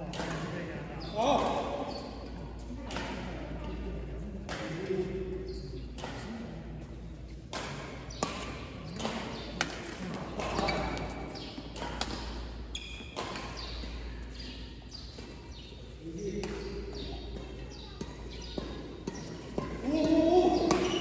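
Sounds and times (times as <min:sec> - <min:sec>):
racket striking shuttlecock: 0:00.1 - 0:00.5, 0:04.4 - 0:04.8, 0:07.5 - 0:15.7, 0:16.4 - 0:21.0
sneakers squeaking on court floor: 0:08.0 - 0:21.0.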